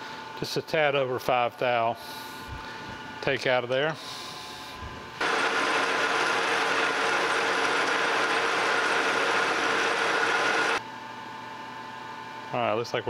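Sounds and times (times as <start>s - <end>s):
lathe cutting metal: 5.2s - 10.8s
lathe whine: 5.2s - 10.8s.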